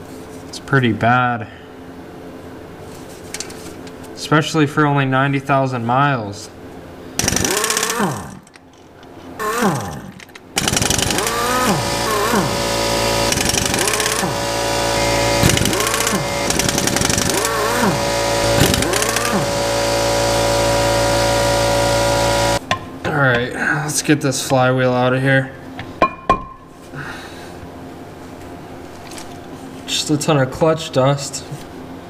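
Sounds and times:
pneumatic impact wrench rattling: 0:07.2 - 0:22.6.

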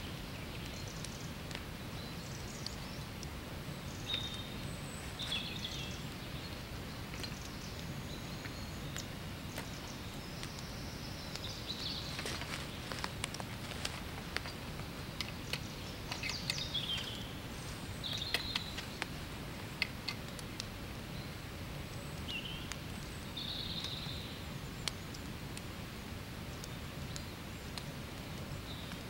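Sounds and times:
birds chirping: 0:00.0 - 0:25.5, 0:26.3 - 0:29.0
low outdoor rumble: 0:00.0 - 0:29.0.

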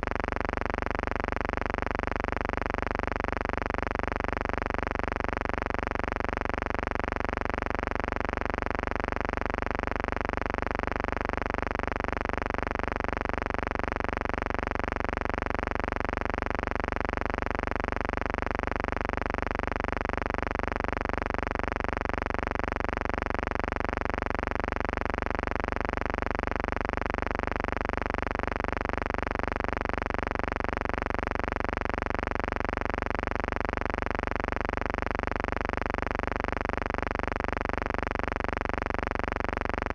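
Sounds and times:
steady buzzing hum: 0:00.0 - 0:11.8.

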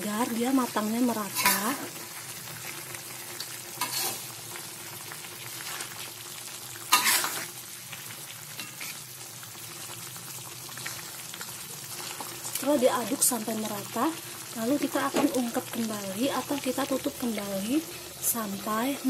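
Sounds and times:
chicken sizzling in a pot: 0:00.0 - 0:19.0
spatula scraping a metal pot: 0:03.8 - 0:04.2, 0:06.9 - 0:07.5.

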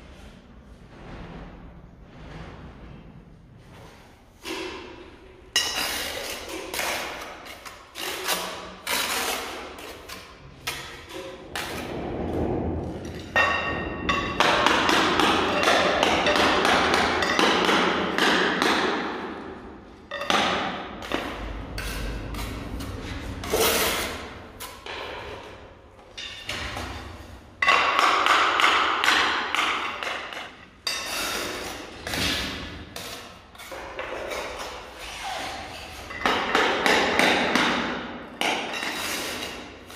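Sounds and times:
trowel scraping mortar: 0:05.6 - 0:12.0, 0:21.0 - 0:25.5, 0:30.8 - 0:36.8, 0:38.7 - 0:39.9.

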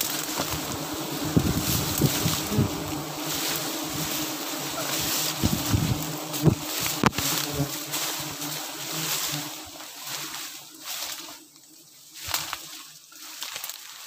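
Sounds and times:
rustling: 0:00.0 - 0:11.4, 0:12.1 - 0:14.0
bees buzzing: 0:00.0 - 0:11.9
wind on microphone: 0:00.4 - 0:03.1, 0:05.0 - 0:07.2.

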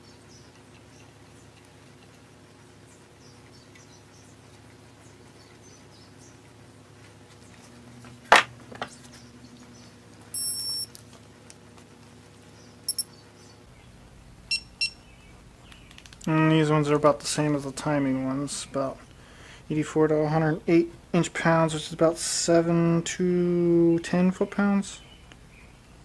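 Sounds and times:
faint steady hum: 0:00.0 - 0:26.0
electronic beeps: 0:10.4 - 0:10.9, 0:12.9 - 0:13.1, 0:14.5 - 0:15.0.

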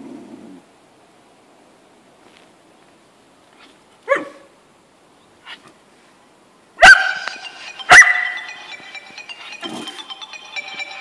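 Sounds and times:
dog barking: 0:04.0 - 0:04.5, 0:06.8 - 0:07.3.

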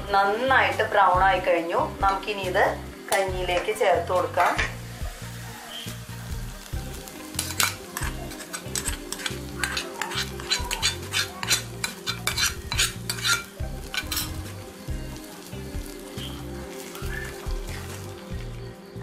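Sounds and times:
oil sizzling: 0:00.0 - 0:19.0
metal spoon scraping a pan: 0:06.6 - 0:18.4.

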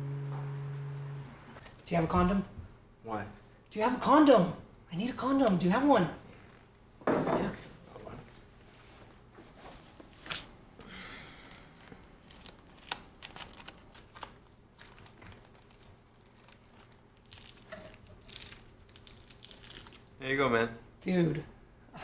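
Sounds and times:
plastic wrapper crinkling: 0:12.2 - 0:20.2.

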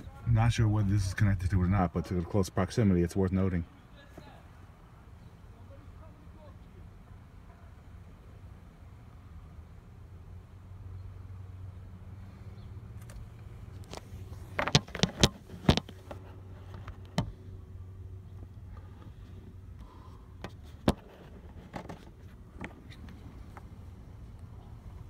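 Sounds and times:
steady low hum: 0:00.0 - 0:25.0
phone handling knocks and clicks: 0:14.5 - 0:16.0.

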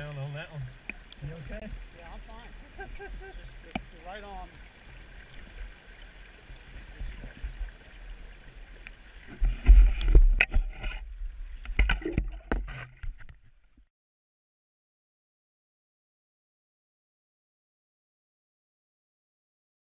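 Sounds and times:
rain: 0:00.0 - 0:10.5
flowing river water: 0:00.0 - 0:13.8.

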